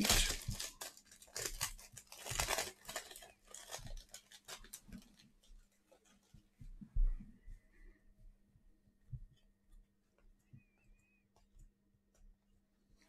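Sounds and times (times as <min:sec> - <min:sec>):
packaging tearing and crinkling: 0:00.0 - 0:05.3.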